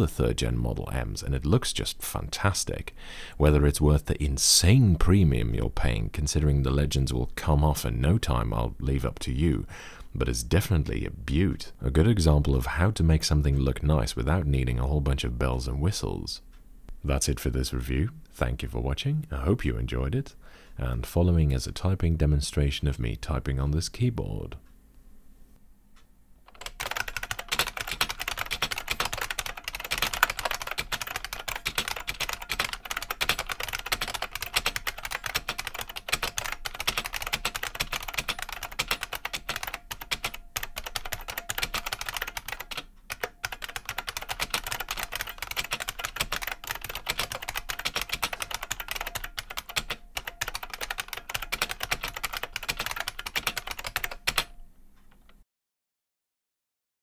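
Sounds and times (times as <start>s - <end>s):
fast keyboard typing clicks: 26.5s - 54.6s.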